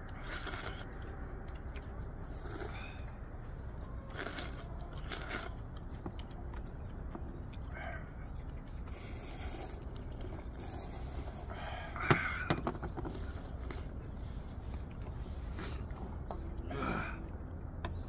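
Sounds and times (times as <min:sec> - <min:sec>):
people slurping noodles: 0:00.1 - 0:01.0, 0:02.2 - 0:03.1, 0:04.1 - 0:05.7, 0:07.6 - 0:12.5.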